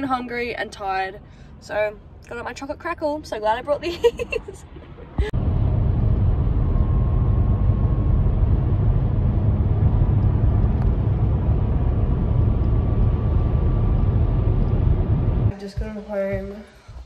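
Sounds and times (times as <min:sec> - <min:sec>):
car driving rumble inside cabin: 0:02.2 - 0:15.6.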